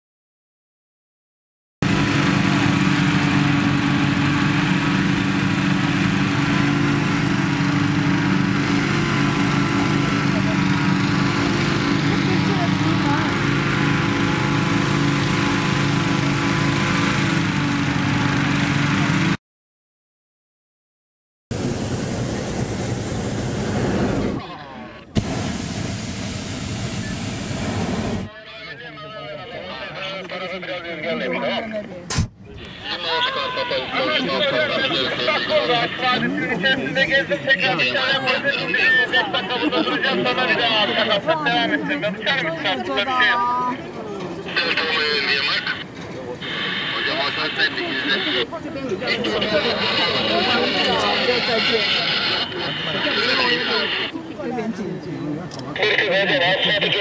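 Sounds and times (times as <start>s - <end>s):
propane burner roaring: 1.8s - 19.3s, 21.5s - 24.4s, 25.1s - 28.3s, 44.5s - 54.2s
petrol inflator fan running: 1.8s - 19.4s, 21.5s - 24.4s, 25.2s - 28.3s
faint voices: 28.3s - 57.0s.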